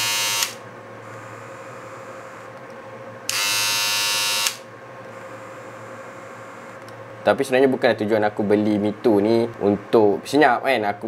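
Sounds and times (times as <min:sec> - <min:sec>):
electric shaver buzzing: 0:00.0 - 0:00.6, 0:03.3 - 0:06.7
faint steady hum: 0:00.0 - 0:11.0.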